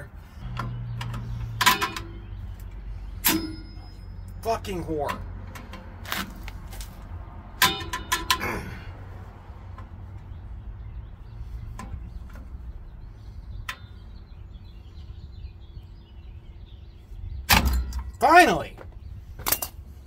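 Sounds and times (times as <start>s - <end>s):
metal tool clinking on brake parts: 0.5s - 2.3s, 3.2s - 5.2s, 7.6s - 8.6s, 19.4s - 19.9s.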